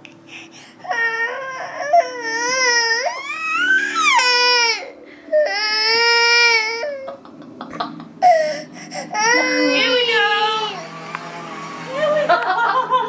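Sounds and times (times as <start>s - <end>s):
baby crying: 0.8s - 7.1s, 8.2s - 10.9s.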